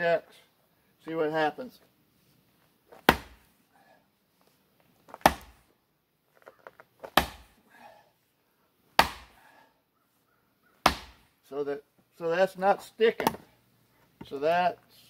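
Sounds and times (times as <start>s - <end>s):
splitting maul striking wood: 3.0s - 3.4s, 5.1s - 5.6s, 7.0s - 7.6s, 9.0s - 9.4s, 10.8s - 11.3s.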